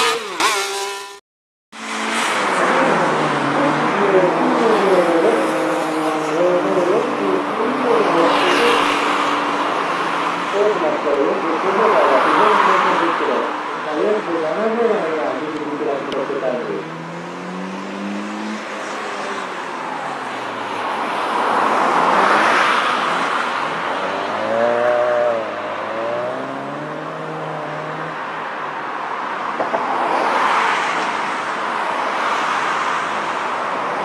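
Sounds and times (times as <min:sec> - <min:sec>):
tyre noise cornering: 0:12.0 - 0:28.8
car engine revving: 0:16.0 - 0:28.7.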